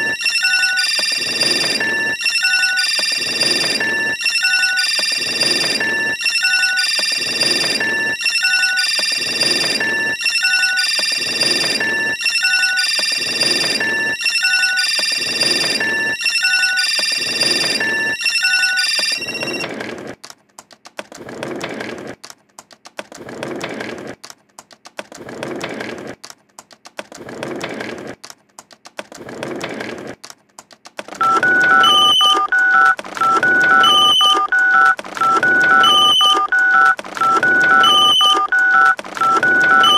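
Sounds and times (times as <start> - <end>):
telephone-like beeps: 0.0 - 19.7, 31.2 - 39.9
scratchy electronic pulses: 31.2 - 39.9.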